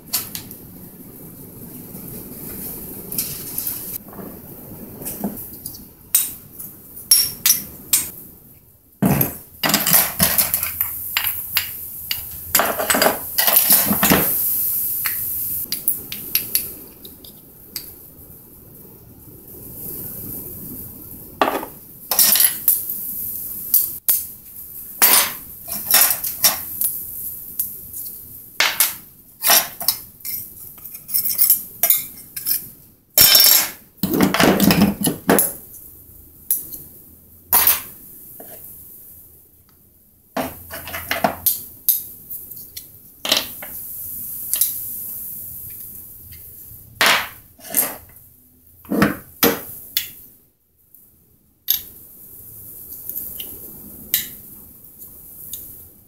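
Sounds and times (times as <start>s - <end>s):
metal parts clinking on workbench: 33.2s - 35.5s.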